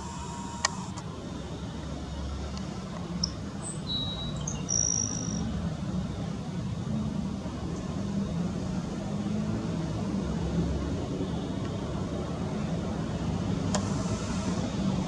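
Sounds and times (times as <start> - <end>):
short high chirps: 3.8 - 5.4.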